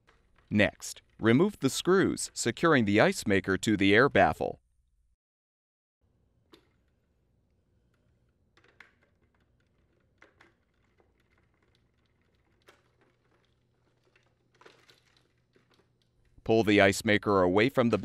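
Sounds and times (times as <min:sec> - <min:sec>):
plastic parts knocking: 0:07.8 - 0:16.4.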